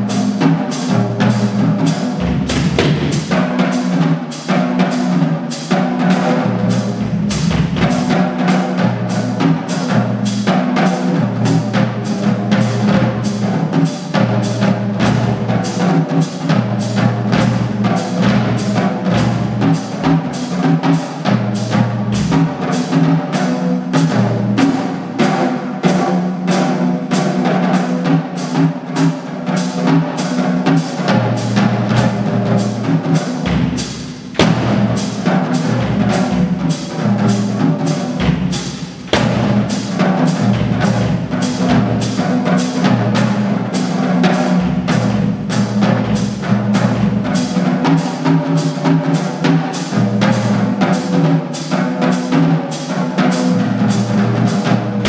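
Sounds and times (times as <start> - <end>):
jazz drum solo: 0.0 - 55.0.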